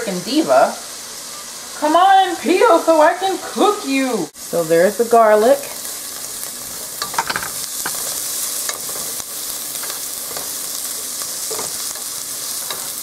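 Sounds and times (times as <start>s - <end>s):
onions sizzling in a pot: 0.0s - 13.0s
spatula scraping and tapping pan: 7.0s - 13.0s.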